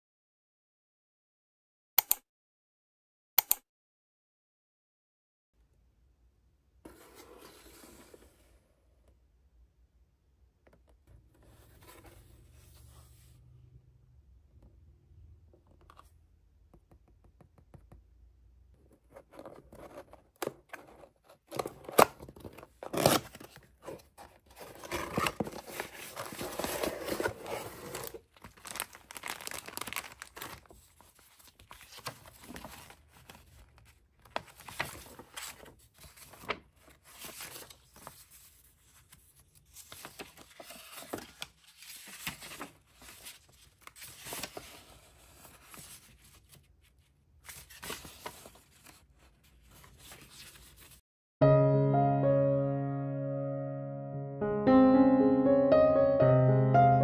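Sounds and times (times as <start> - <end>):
sharp clicks: 3.4 - 3.6
paper tearing and crinkling: 21.6 - 24.0, 24.6 - 33.6.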